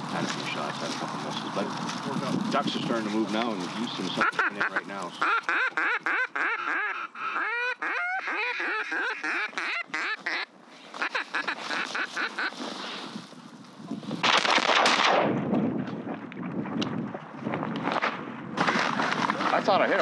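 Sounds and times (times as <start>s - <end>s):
duck call quacks: 4.1s - 12.6s.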